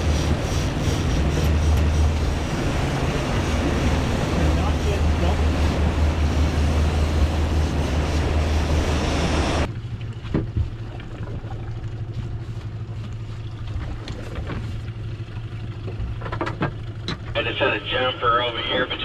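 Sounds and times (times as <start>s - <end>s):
outboard motor running: 0.0s - 17.5s
low steady hum: 0.0s - 19.0s
rushing wake water: 0.0s - 19.0s.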